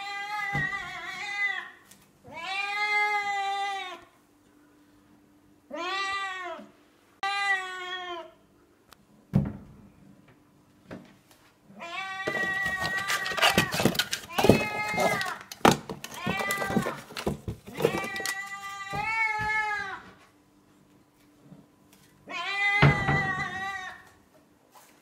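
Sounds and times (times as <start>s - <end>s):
cupboard opening with clatter: 12.3s - 18.4s
cat meowing: 22.3s - 24.1s.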